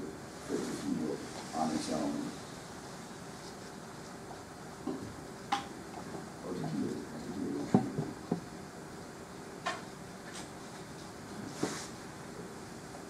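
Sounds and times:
room hum: 0.0 - 13.0
soft rustling: 0.3 - 4.4.

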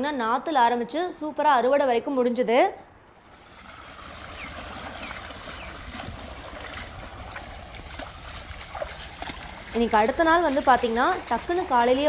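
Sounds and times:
running water rushing: 3.2 - 12.0.

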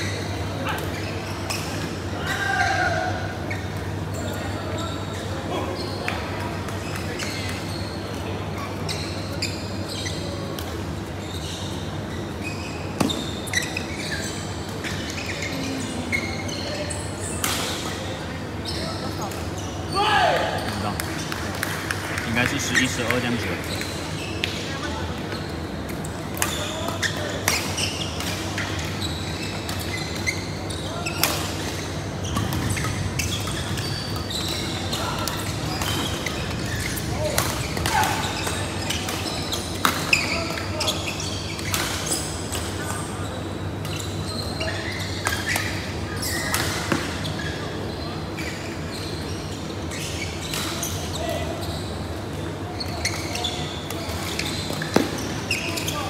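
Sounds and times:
sneakers squeaking on floor: 0.0 - 21.6, 22.2 - 56.0
echoing chatter: 30.5 - 41.4.

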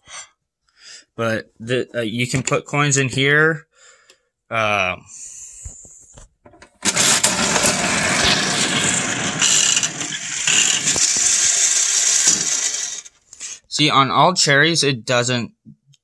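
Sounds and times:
whirring rattle of spinning reels: 6.8 - 13.1.

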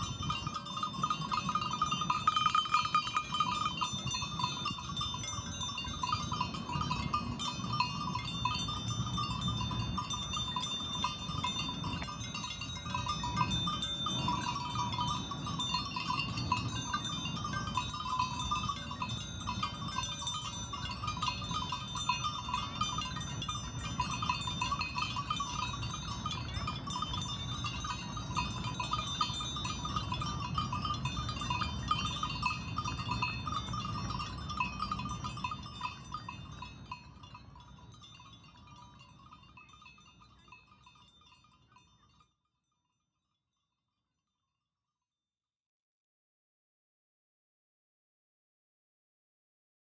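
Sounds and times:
sheep grazing: 0.0 - 39.7
chime-like ringing tones: 0.0 - 42.8.

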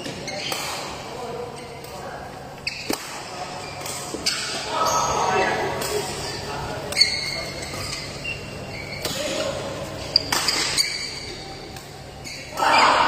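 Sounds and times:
shoes squeaking on court: 0.0 - 12.9
racket hitting shuttlecock: 2.7 - 4.6, 10.2 - 10.9.

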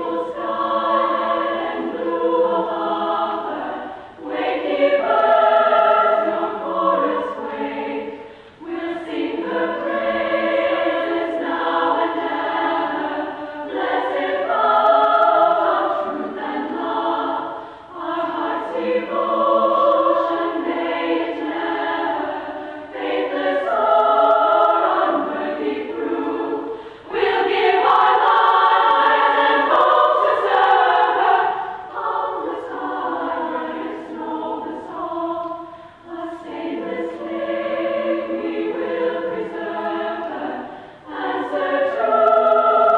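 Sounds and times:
choir singing: 0.0 - 42.9.

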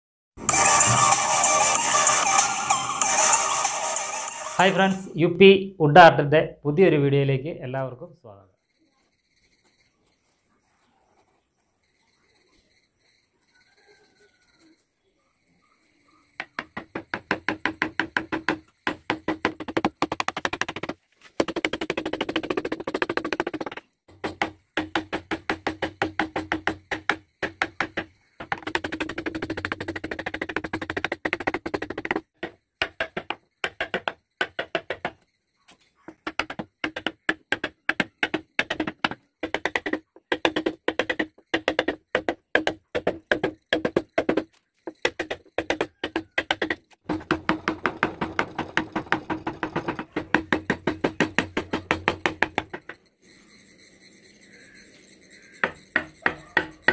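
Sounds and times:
mallet tapping gouge into wood: 16.4 - 35.2, 36.1 - 53.0, 55.6 - 56.9.

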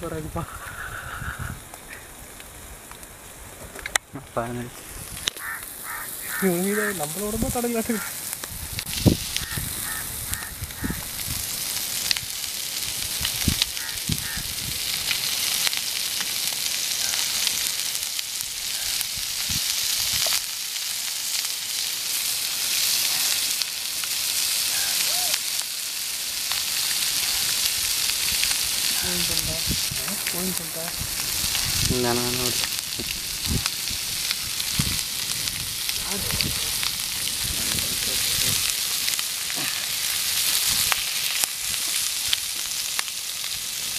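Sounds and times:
fish sizzling on a griddle: 0.0 - 43.9
small pops: 15.0 - 17.8.

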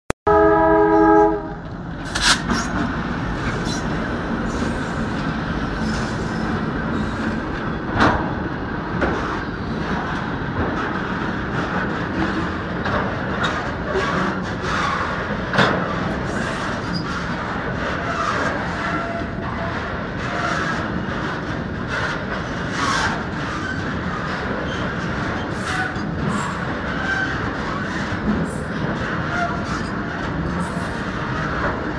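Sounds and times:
locomotive horn chord: 0.3 - 1.6
train wheels rumbling on rails: 0.4 - 31.9.

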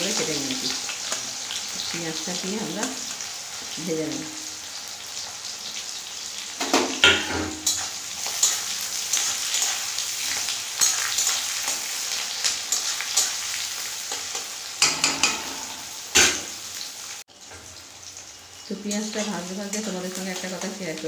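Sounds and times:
onions sizzling in hot oil: 0.0 - 21.0
metal spatula scraping a pan: 7.0 - 16.6.

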